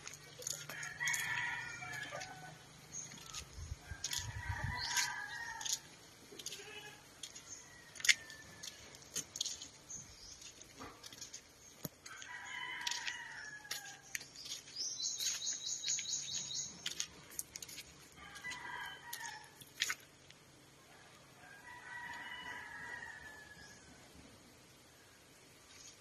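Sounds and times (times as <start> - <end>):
rooster crowing: 0.6 - 2.6, 12.0 - 14.0, 18.2 - 19.6, 21.4 - 23.8
high pulsed bird chatter: 14.2 - 17.7.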